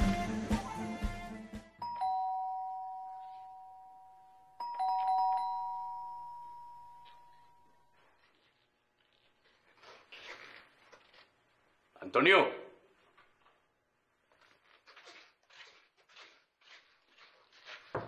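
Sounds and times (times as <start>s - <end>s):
background music: 0.0s - 2.0s
two-tone doorbell chime: 1.8s - 8.0s.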